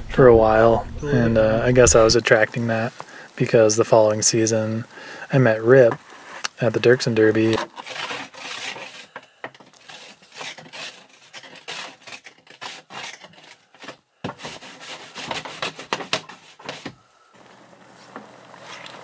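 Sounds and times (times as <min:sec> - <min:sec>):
snow brush scraping windshield: 0:01.6 - 0:09.2, 0:09.8 - 0:17.0.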